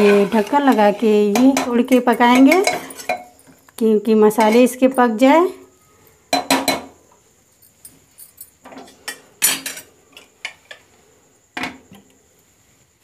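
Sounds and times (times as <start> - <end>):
metal pot lid clinks and knocks: 6.3 - 6.9.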